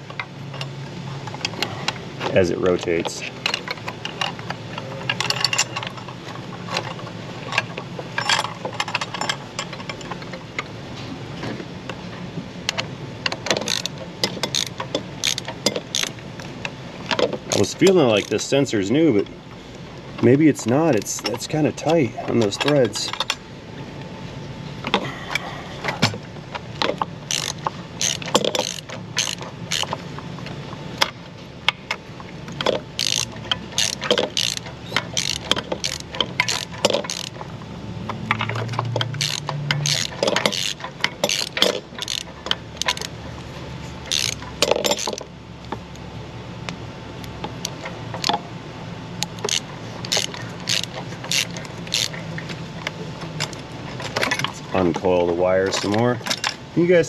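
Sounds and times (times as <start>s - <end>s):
socket ratchet clicking: 13.3s - 16.2s, 26.8s - 30.0s, 32.5s - 37.4s, 38.1s - 43.1s, 44.1s - 45.3s, 49.2s - 52.2s.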